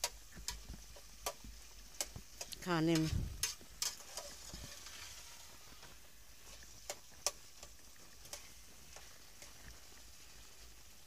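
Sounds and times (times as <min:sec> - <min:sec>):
spatula clicking against pot: 0:00.0 - 0:04.2
faint sizzle: 0:00.0 - 0:11.0
metal spatula stirring in a pot: 0:00.0 - 0:11.0.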